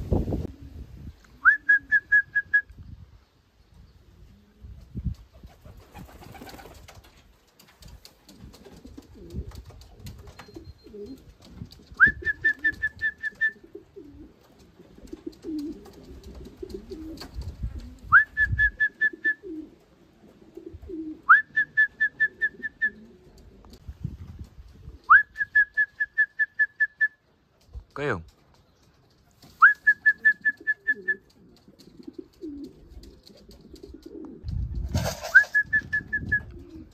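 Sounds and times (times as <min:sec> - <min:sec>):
pigeons cooing: 0:04.1 - 0:06.8, 0:08.0 - 0:23.8, 0:29.4 - 0:36.9
whistle call with short pips: 0:12.0 - 0:13.6, 0:18.1 - 0:19.4, 0:21.3 - 0:23.0, 0:25.1 - 0:27.2, 0:29.6 - 0:31.2, 0:35.2 - 0:36.5.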